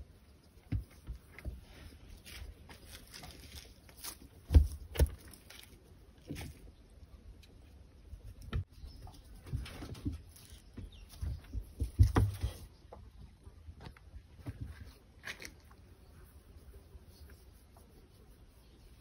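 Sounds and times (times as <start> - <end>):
rustling of straw and fur: 0.1 - 6.8, 8.1 - 12.7
dull thumps: 4.4 - 5.4, 9.4 - 12.6.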